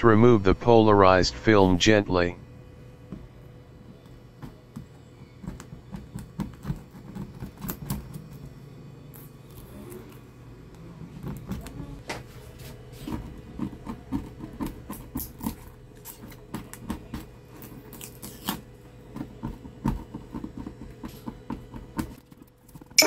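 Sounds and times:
film crackling and peeling: 0:14.9 - 0:18.7.

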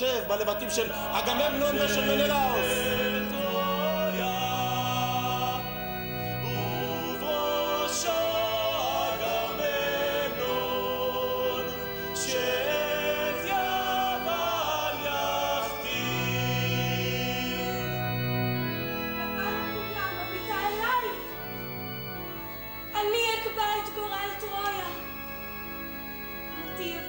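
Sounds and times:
choir singing: 0:00.0 - 0:21.6
held low music notes: 0:00.0 - 0:27.0.

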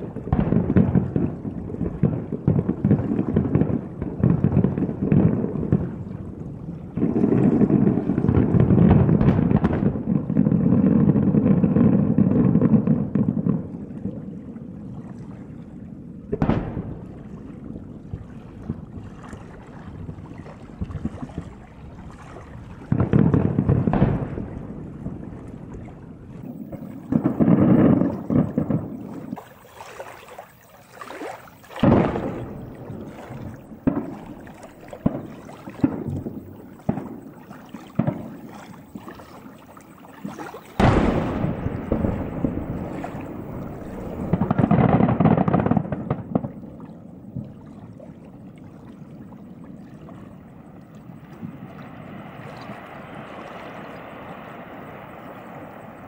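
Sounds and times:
distant fireworks booming: 0:00.0 - 0:48.3, 0:50.0 - 0:56.0
steady background hiss: 0:16.1 - 0:47.4, 0:50.3 - 0:56.0
very loud firework boom: 0:16.3 - 0:17.3, 0:22.9 - 0:25.3, 0:31.8 - 0:37.2, 0:40.8 - 0:46.6.

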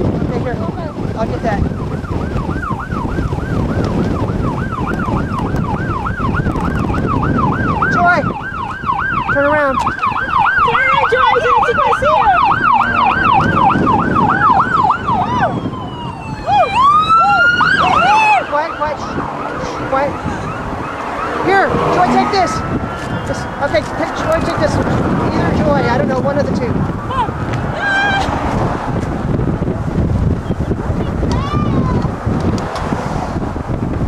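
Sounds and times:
wind buffeting microphone: 0:00.0 - 0:34.0
siren yelping: 0:01.7 - 0:23.6.

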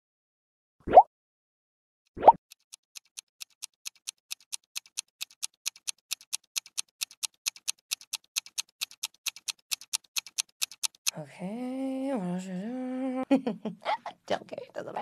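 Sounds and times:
phone keyboard typing clicks: 0:02.5 - 0:11.1.

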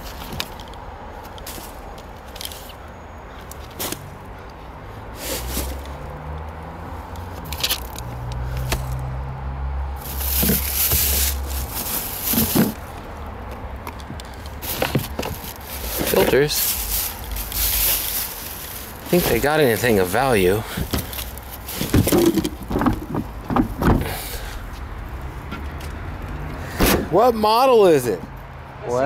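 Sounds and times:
paper rustling: 0:10.0 - 0:12.9, 0:14.5 - 0:24.0
plastic bag crinkling: 0:10.0 - 0:12.9, 0:14.5 - 0:23.2.

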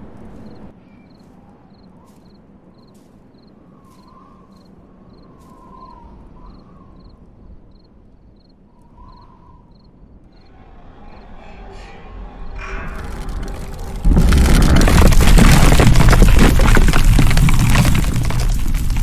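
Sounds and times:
low rumble: 0:10.1 - 0:19.0.

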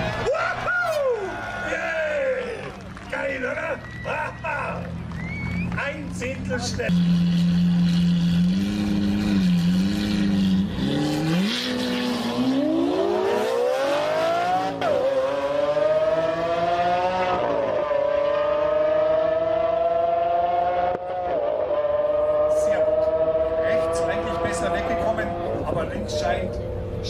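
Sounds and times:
racing car engine accelerating: 0:06.8 - 0:27.0.

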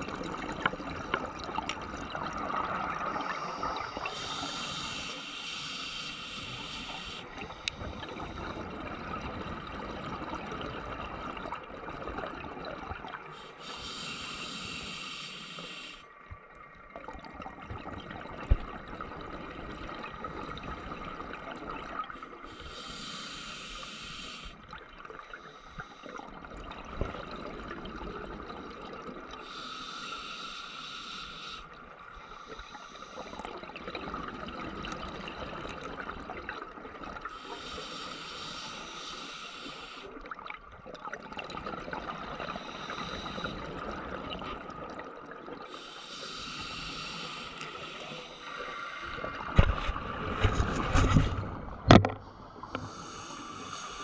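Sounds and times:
diver breathing bubbles: 0:00.0 - 0:11.5, 0:13.2 - 0:16.1, 0:18.4 - 0:36.4, 0:37.2 - 0:40.3, 0:41.2 - 0:54.0
underwater hiss: 0:02.3 - 0:09.2, 0:13.2 - 0:16.1, 0:22.1 - 0:26.5, 0:29.4 - 0:33.6, 0:37.3 - 0:40.2, 0:41.9 - 0:44.4, 0:45.6 - 0:50.4, 0:52.2 - 0:54.0.

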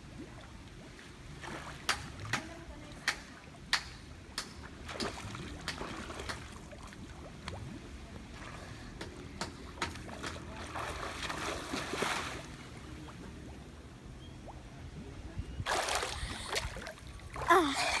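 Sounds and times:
pool water lapping: 0:00.0 - 0:18.0
swimmer splashing: 0:04.6 - 0:13.3, 0:15.7 - 0:18.0.

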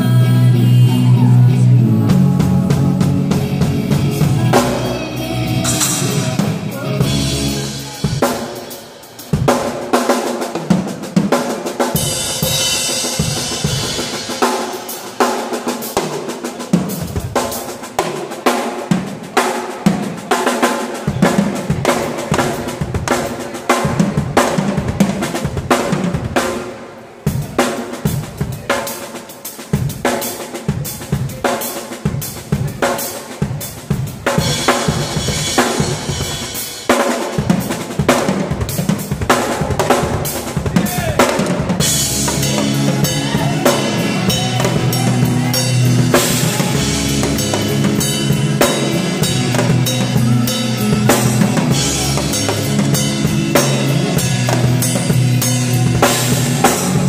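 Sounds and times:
drum kit playing: 0:00.0 - 0:57.0.

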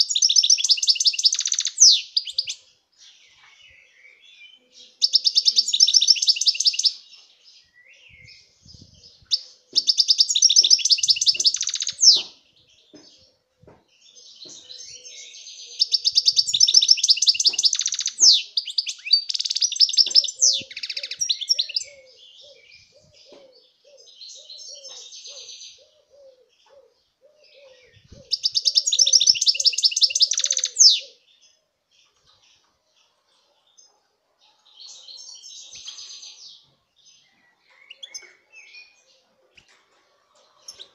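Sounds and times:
goldfinch singing: 0:00.0 - 0:02.6, 0:03.4 - 0:07.0, 0:07.8 - 0:13.0, 0:14.1 - 0:23.4, 0:27.7 - 0:31.2.

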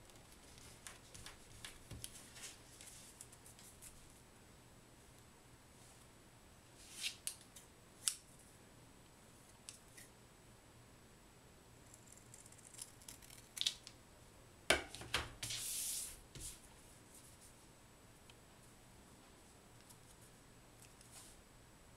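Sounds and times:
scissors snipping paper: 0:12.0 - 0:13.8.

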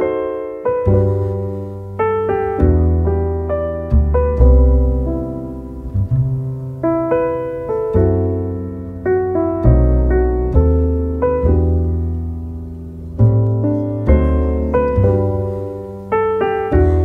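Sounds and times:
gentle piano piece: 0:00.0 - 0:17.0.

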